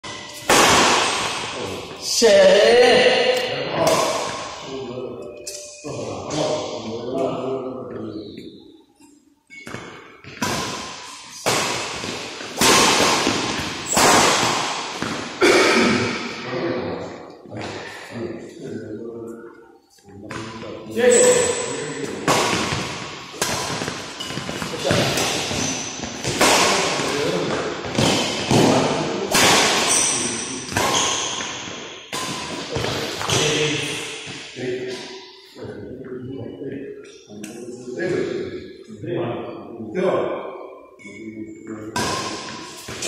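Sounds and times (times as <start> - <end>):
racket hitting shuttlecock: 0.1 - 1.6, 9.5 - 16.4, 21.2 - 35.1, 41.9 - 43.0.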